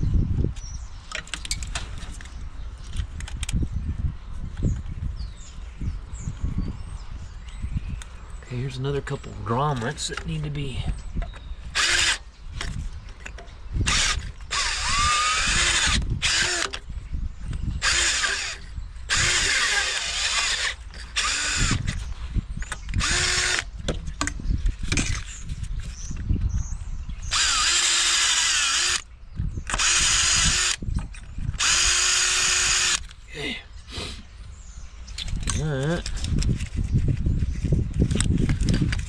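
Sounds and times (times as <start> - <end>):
cordless power tool motor whine: 11.3 - 12.3, 13.8 - 16.9, 17.5 - 22.1, 22.7 - 23.8, 27.2 - 33.1.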